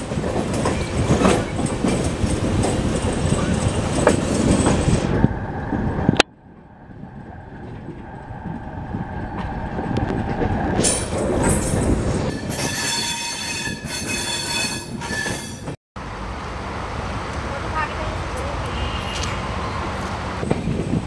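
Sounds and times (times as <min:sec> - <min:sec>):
train running on rails: 0:00.0 - 0:21.0
steel wheels squealing: 0:10.8 - 0:15.7.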